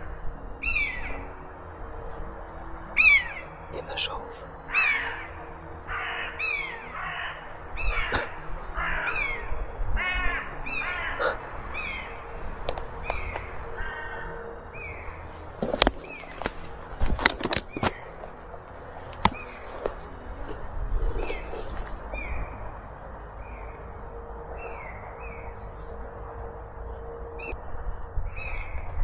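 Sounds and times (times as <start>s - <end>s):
crows cawing: 4.6s - 15.2s
sharp clicks: 15.6s - 18.2s.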